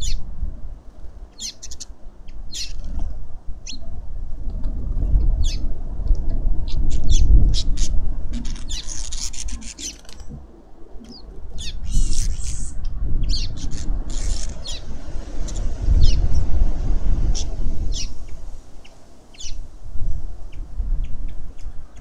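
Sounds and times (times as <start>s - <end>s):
small birds chirping: 0.0s - 0.2s, 1.3s - 3.0s, 6.7s - 19.8s
wind rumbling on microphone: 0.0s - 22.0s
wing flutters: 7.8s - 20.6s.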